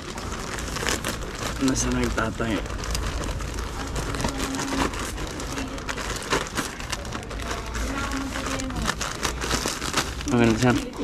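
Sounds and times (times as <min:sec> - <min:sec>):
plastic packaging crinkling: 0:00.0 - 0:11.0.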